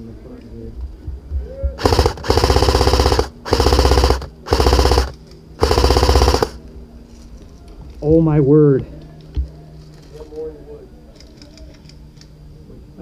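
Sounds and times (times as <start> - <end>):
airsoft rifle firing full auto: 1.8 - 6.6.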